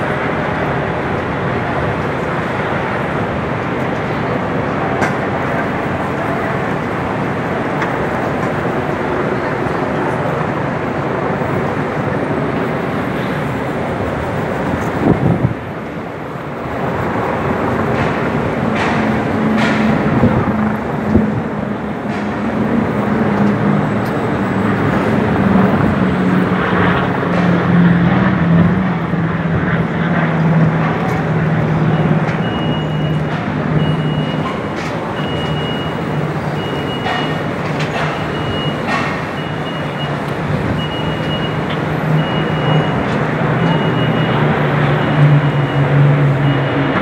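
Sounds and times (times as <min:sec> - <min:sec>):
urban traffic hum: 0:00.0 - 0:47.0
reversing alarm beeping: 0:30.9 - 0:47.0.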